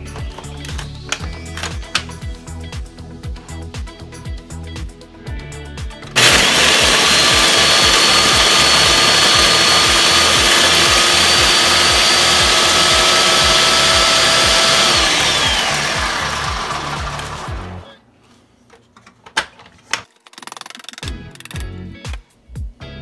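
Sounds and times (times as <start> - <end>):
background music with a beat: 0.0 - 17.9, 21.0 - 23.0
blender grinding bread: 6.2 - 17.9.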